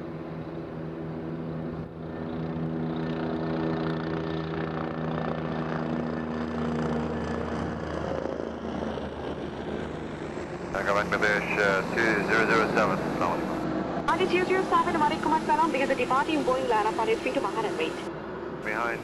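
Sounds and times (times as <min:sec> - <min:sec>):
jet engines humming: 0:00.0 - 0:19.0.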